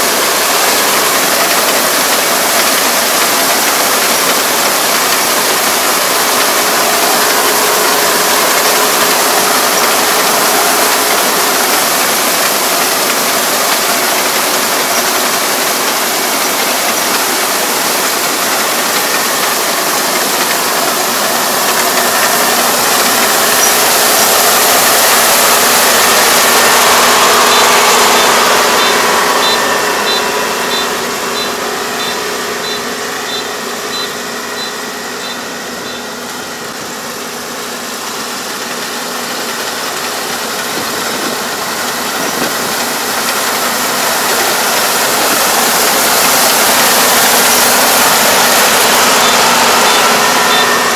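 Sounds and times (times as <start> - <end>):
combine harvester machinery: 0.0 - 50.9
short high beeps: 27.4 - 36.0, 49.2 - 50.8.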